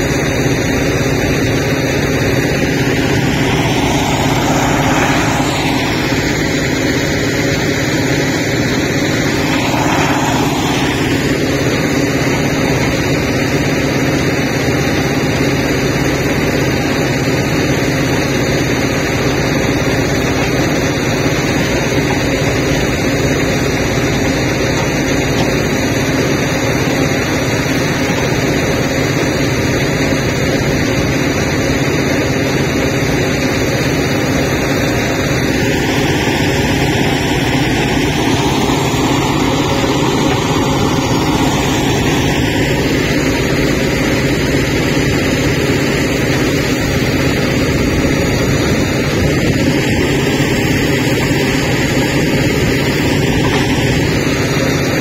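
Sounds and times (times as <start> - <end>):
higher-pitched drone layer: 0.0 - 14.2, 33.0 - 55.0
conveyor running: 0.0 - 55.0
diesel engine drone: 0.0 - 55.0.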